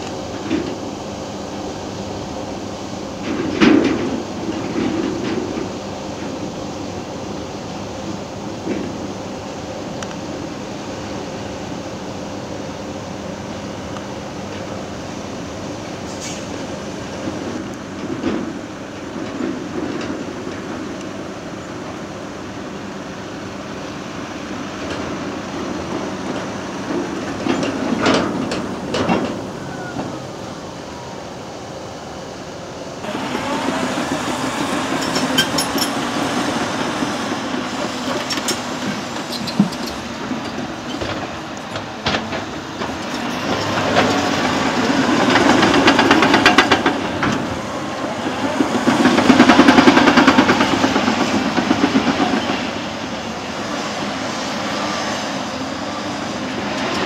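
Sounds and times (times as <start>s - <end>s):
diesel engine under load: 0.0s - 57.0s
steel tracks clattering: 0.0s - 57.0s
metal clanks: 34.9s - 36.2s.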